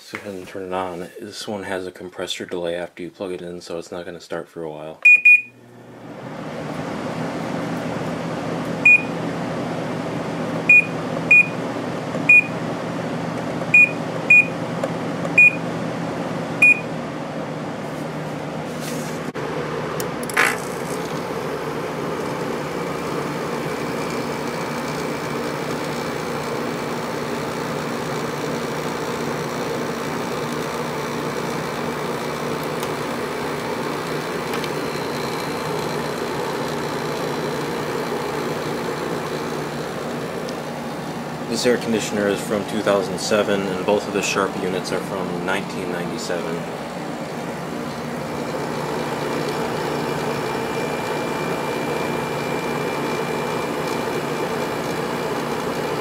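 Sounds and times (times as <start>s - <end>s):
air conditioner fan running: 0.0s - 56.0s
control panel beeps: 5.0s - 5.6s, 8.8s - 9.1s, 10.7s - 11.6s, 13.7s - 14.5s, 15.4s - 15.6s, 16.6s - 16.9s.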